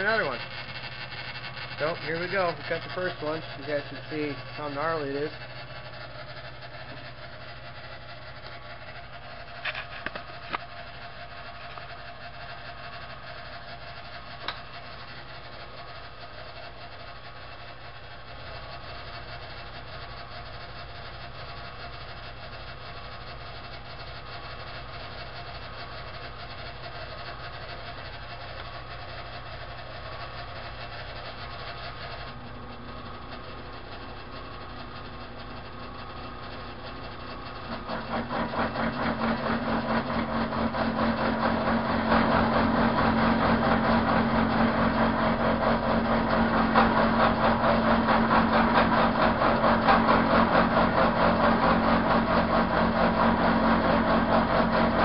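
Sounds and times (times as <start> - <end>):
milling cutter cutting steel: 0.0 - 5.8, 37.3 - 55.0
milling machine running: 0.0 - 55.0.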